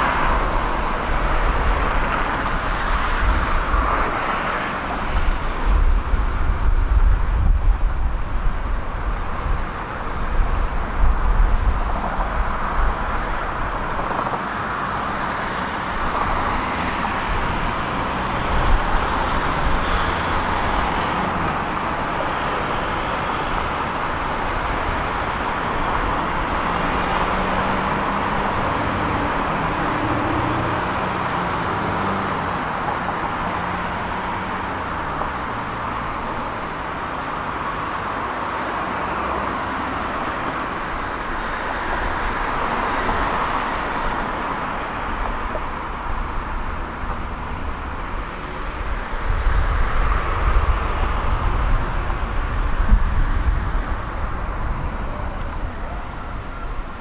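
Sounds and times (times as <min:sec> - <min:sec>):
road traffic passing: 0:00.0 - 0:57.0
wind buffeting microphone: 0:05.0 - 0:14.4, 0:48.8 - 0:57.0.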